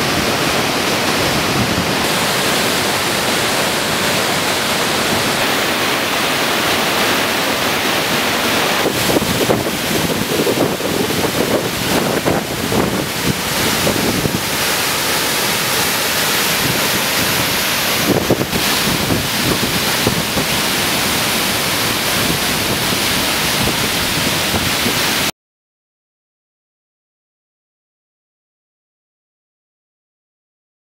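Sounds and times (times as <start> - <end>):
waterfall and rapids rushing: 0.0 - 25.3
wind gusts on microphone: 8.7 - 14.6, 16.6 - 25.3.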